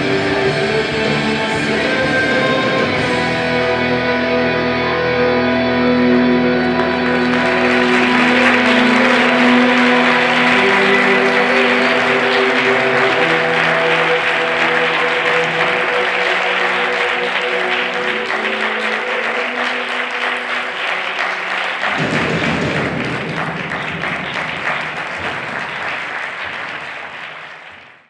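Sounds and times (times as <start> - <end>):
music held notes: 0.0 - 26.4
audience applauding: 6.0 - 28.0.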